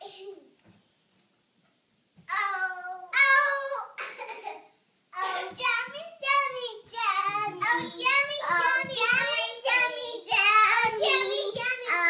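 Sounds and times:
child singing: 5.2 - 12.0.

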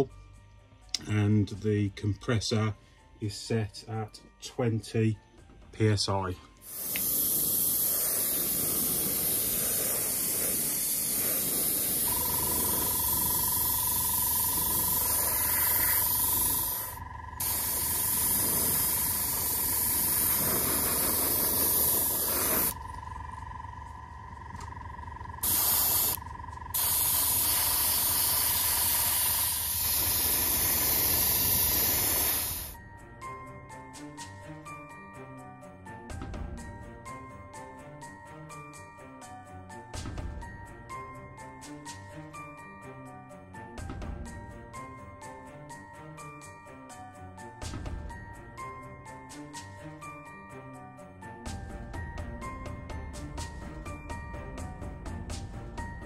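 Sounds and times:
airbrush spraying hiss: 6.6 - 23.1, 25.0 - 32.8
steady whine and low hum: 22.7 - 26.7.

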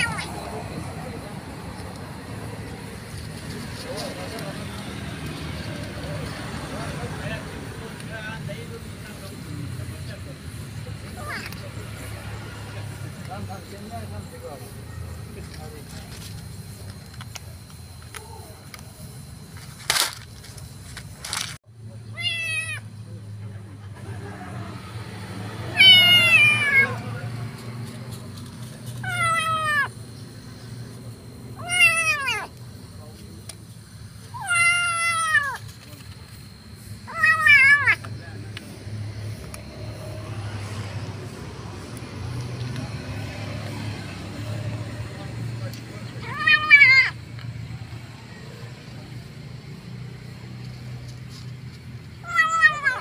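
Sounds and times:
kitten meowing: 0.0 - 0.3, 22.1 - 22.9, 25.7 - 27.0, 29.0 - 30.0, 31.6 - 32.5, 34.3 - 35.6, 37.1 - 38.1, 46.2 - 47.2, 52.2 - 53.0
road traffic hum: 0.0 - 53.0.

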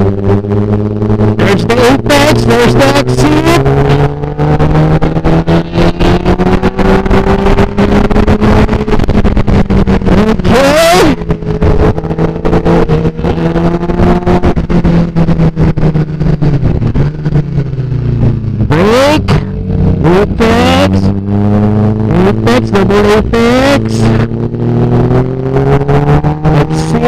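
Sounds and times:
motorcycle engine revving: 0.0 - 27.0
wind buffeting microphone: 3.6 - 20.0.

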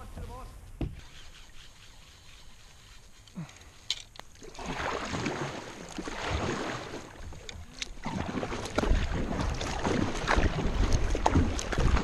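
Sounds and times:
paddle splashing through water: 4.3 - 12.0.

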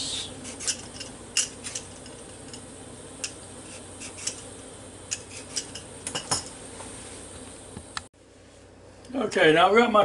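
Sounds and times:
peeler scraping potato: 3.6 - 4.5.

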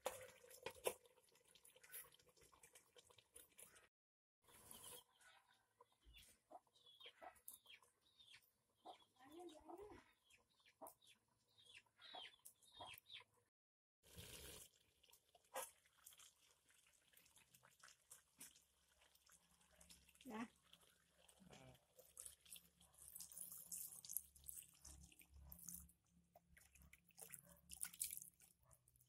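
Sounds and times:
chickens clucking: 12.0 - 13.3.

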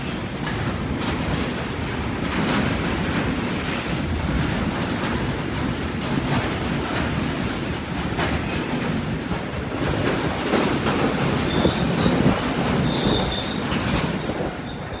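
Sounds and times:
train wheels rumbling: 0.0 - 15.0
faint high wheel squeal: 11.0 - 15.0.

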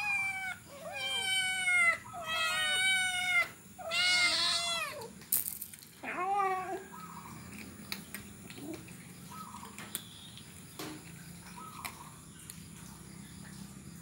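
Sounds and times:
cat meowing: 0.0 - 5.1, 6.0 - 7.0.

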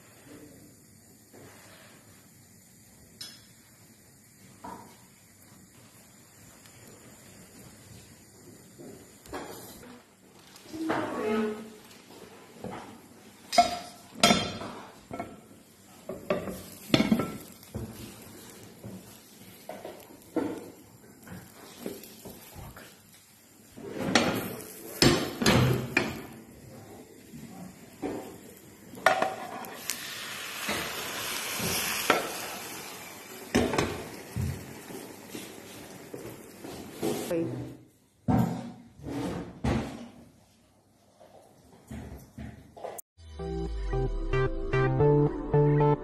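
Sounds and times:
omelette sizzling in oil: 0.1 - 10.8, 11.8 - 37.4.

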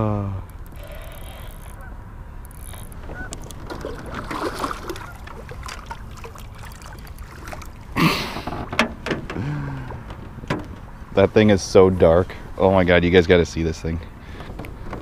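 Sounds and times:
water splashing: 2.7 - 9.0
splash and knock: 3.6 - 7.8.

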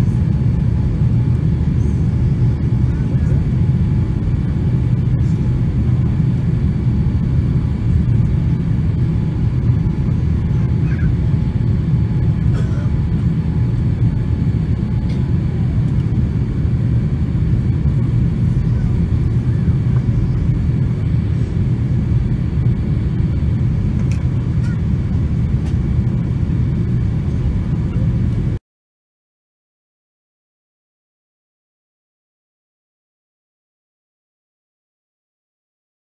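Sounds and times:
airplane engine drone: 0.0 - 28.6.

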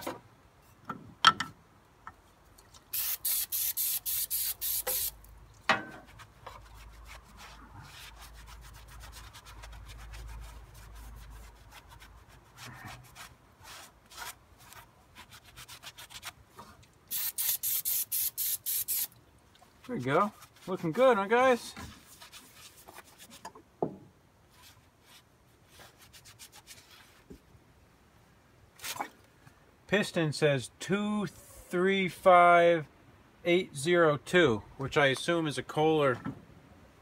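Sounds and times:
aerosol spray squirts: 2.9 - 5.2, 17.1 - 19.2
rag rubbing and scrubbing: 6.0 - 16.3, 19.8 - 23.4.

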